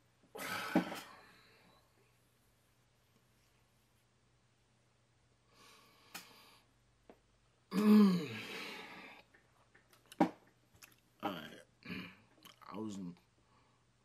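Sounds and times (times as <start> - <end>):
man exhaling: 0.3 - 1.4
man groaning: 7.7 - 8.5.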